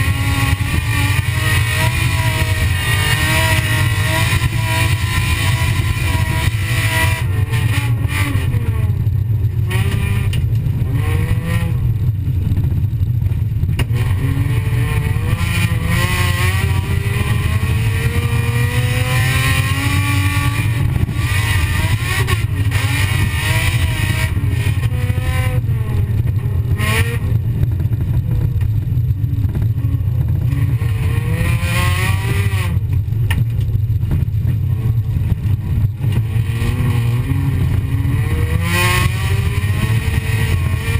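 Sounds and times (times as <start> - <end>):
car engine revving: 0.0 - 40.9
heavy low rumble: 0.0 - 40.9.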